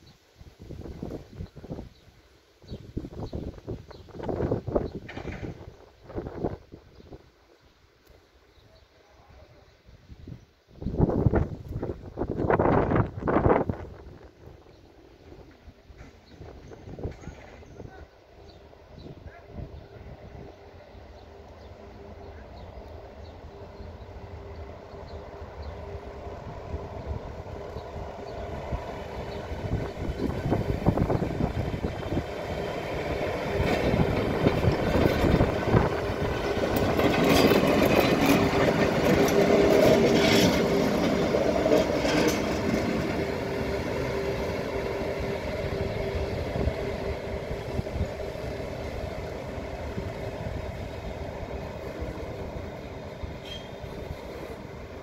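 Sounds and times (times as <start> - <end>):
electric locomotive hum: 0.0 - 55.0
wheels clicking over track: 27.6 - 46.8.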